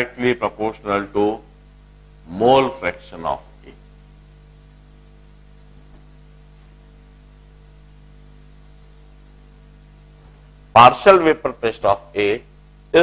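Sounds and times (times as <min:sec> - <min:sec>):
faint hiss: 0:00.0 - 0:13.0
low electrical hum: 0:00.0 - 0:13.0.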